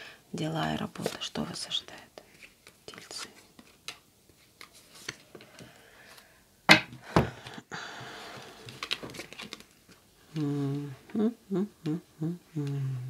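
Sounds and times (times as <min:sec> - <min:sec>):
cards shuffling: 0:02.3 - 0:05.7, 0:08.4 - 0:10.0
cards slapped on table: 0:06.7 - 0:07.3.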